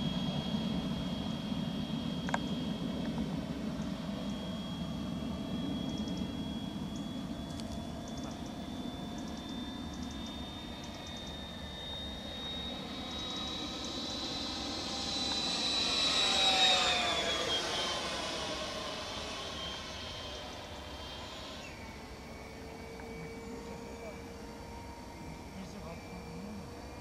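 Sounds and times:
model jet ducted fan whining: 0.0 - 27.0.

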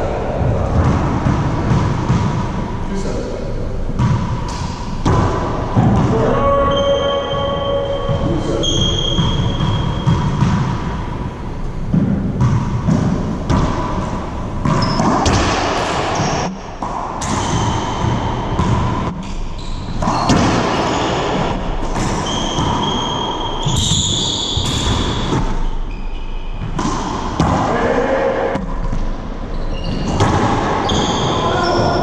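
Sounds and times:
racquetball smacks echoing: 8.9 - 19.4, 20.0 - 23.0, 26.6 - 27.7.

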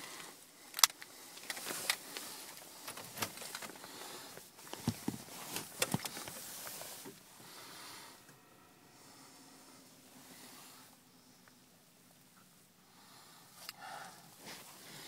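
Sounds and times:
rustling of gloved hand: 1.1 - 7.6.

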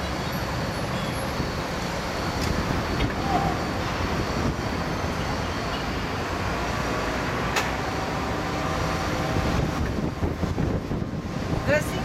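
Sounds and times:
city traffic: 0.0 - 12.0
wind buffeting microphone: 2.4 - 5.2, 9.0 - 12.0.

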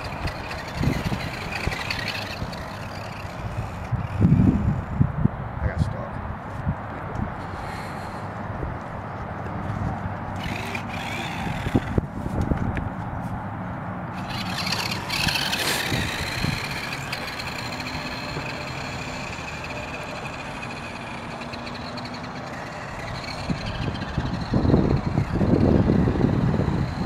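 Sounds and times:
rc truck electric motors whining: 0.0 - 5.1, 7.4 - 8.3, 10.2 - 12.1, 14.1 - 27.0
outdoor rushing noise: 0.0 - 27.0.

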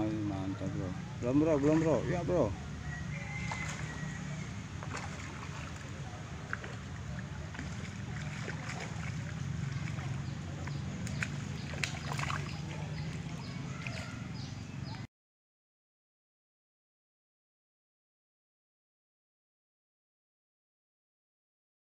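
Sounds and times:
fish splashing in water: 1.4 - 15.1.

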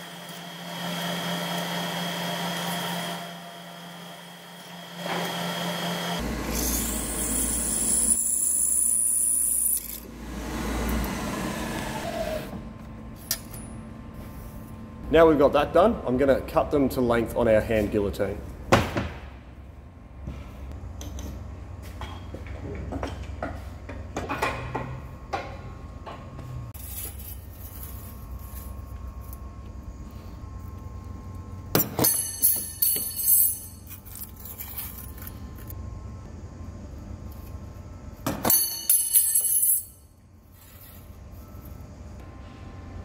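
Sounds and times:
steady low hum: 12.4 - 43.0.

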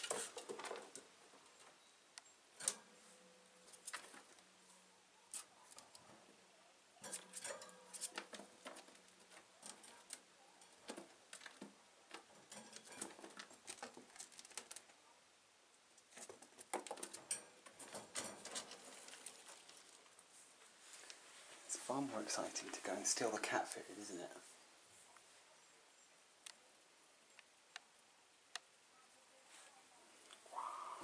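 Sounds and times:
claws scurrying on plastic: 7.0 - 15.0, 16.0 - 21.2.

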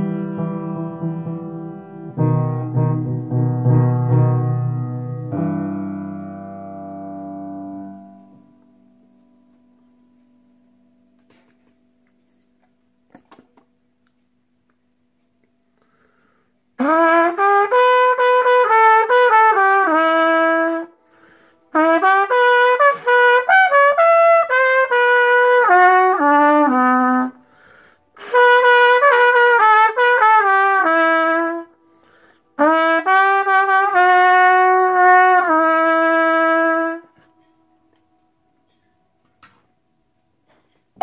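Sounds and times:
solo trumpet melody: 0.0 - 9.2, 16.8 - 38.9.

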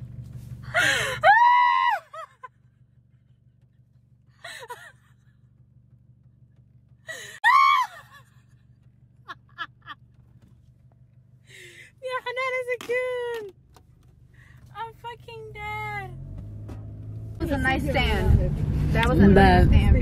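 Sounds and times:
car engine idling: 0.0 - 20.0
woman squealing: 0.8 - 2.5, 7.1 - 8.4.

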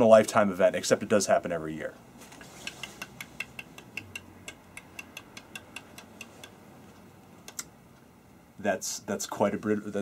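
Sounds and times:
small sharp clicks: 2.6 - 8.1.

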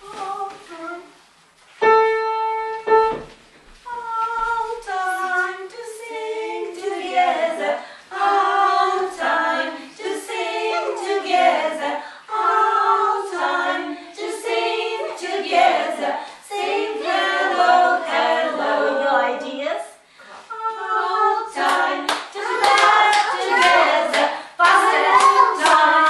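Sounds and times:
women singing unaccompanied: 0.0 - 1.2, 3.9 - 26.0.

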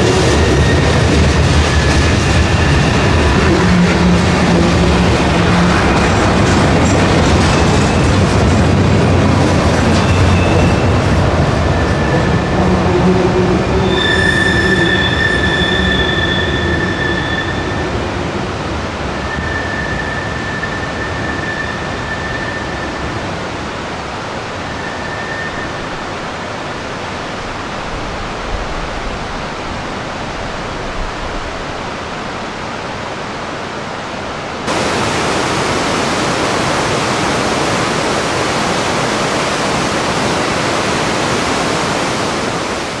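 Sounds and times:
train wheels squealing: 0.0 - 3.4, 9.9 - 12.6, 13.8 - 17.9, 19.2 - 23.2, 24.6 - 26.1
water rushing: 0.0 - 22.1, 22.7 - 43.0.

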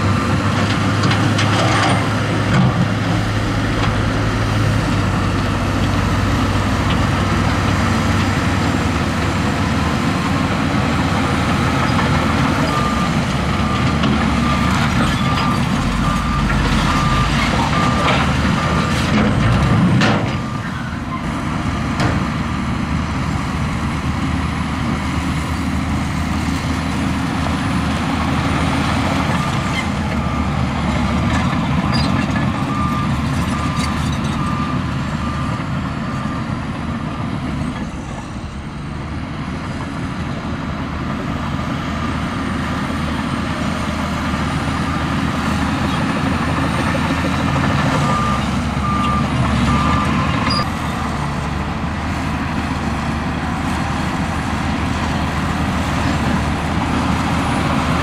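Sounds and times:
heavy diesel machine running: 0.0 - 58.0
reversing alarm beeping: 12.3 - 19.5, 31.8 - 37.2, 47.3 - 50.7.

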